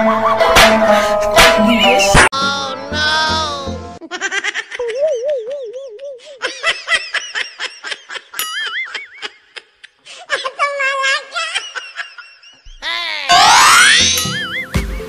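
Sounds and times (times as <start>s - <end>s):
laughter in bursts: 4.0s - 10.6s, 11.2s - 12.6s
wavering pitched sound: 13.3s - 14.8s.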